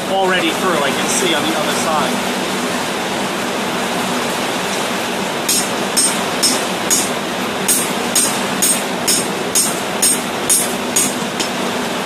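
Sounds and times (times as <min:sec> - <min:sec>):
heavy rain hiss: 0:00.0 - 0:05.4
hammer striking metal: 0:05.5 - 0:11.6.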